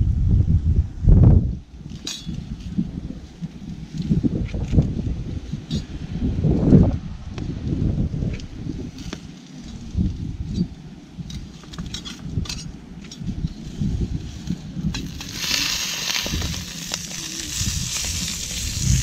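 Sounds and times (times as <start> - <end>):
wind on microphone: 0.0 - 19.0
food sizzling in frying pan: 15.0 - 19.0.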